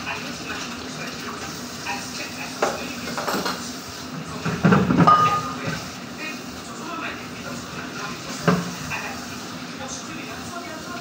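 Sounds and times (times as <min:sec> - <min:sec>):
tap water running into sink: 0:00.0 - 0:11.0
plate clattering against sink: 0:04.5 - 0:05.8.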